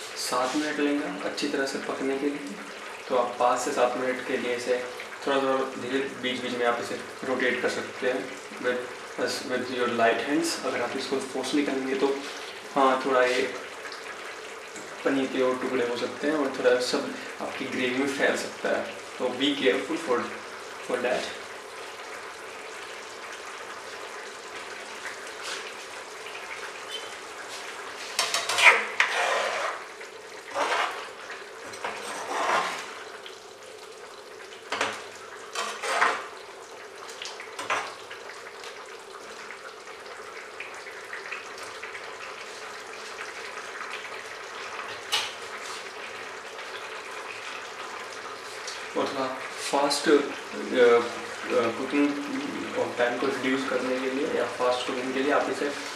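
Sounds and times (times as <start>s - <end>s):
gravy simmering hiss: 0.0s - 55.9s
metal ladle scraping a pan: 28.0s - 29.9s, 30.5s - 33.1s, 35.5s - 36.4s.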